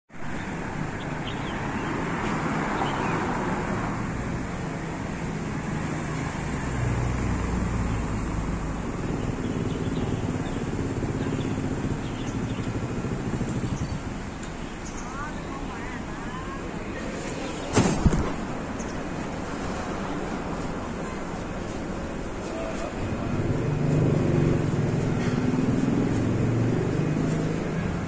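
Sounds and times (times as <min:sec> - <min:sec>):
steady road noise hum: 0:00.1 - 0:28.0
vehicle engine rumbling past: 0:22.3 - 0:28.0.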